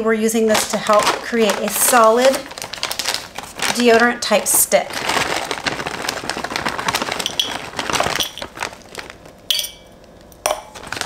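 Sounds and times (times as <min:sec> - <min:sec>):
plastic bag crinkling: 0:00.2 - 0:11.0
small pieces clicking into a glass: 0:07.2 - 0:08.5, 0:09.5 - 0:10.8.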